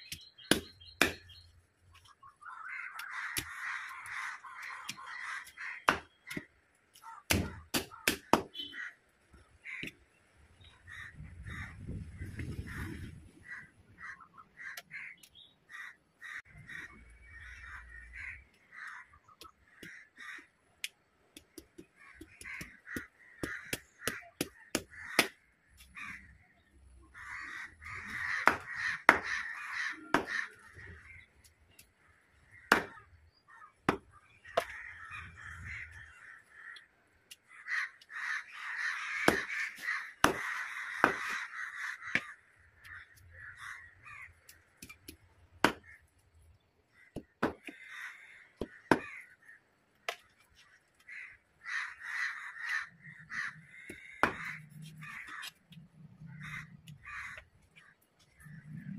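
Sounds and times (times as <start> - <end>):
harsh bird calls: 0.0 - 58.9
cleaver chopping on wooden block: 0.5 - 1.2, 5.8 - 6.4, 7.3 - 8.5, 28.4 - 29.4, 32.7 - 33.0, 39.2 - 39.6, 40.2 - 41.4, 45.6 - 45.9, 47.1 - 47.8, 48.6 - 49.2, 53.9 - 54.6.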